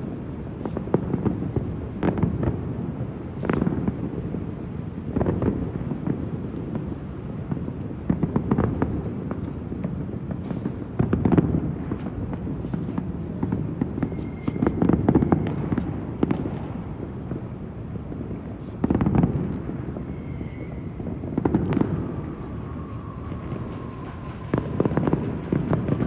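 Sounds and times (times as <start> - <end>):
distant fireworks crackling: 0.0 - 26.0
fireworks booms: 0.4 - 26.0.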